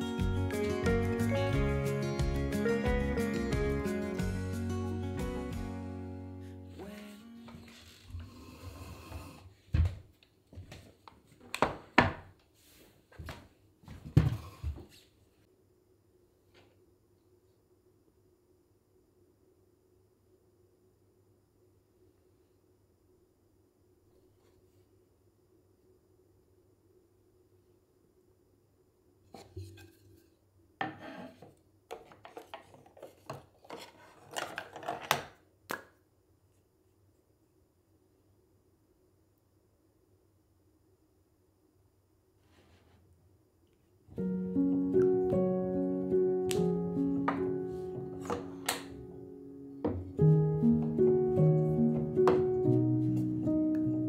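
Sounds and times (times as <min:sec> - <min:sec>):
chair legs knocking on wooden floor: 0:49.8 - 0:50.2, 0:51.9 - 0:52.7.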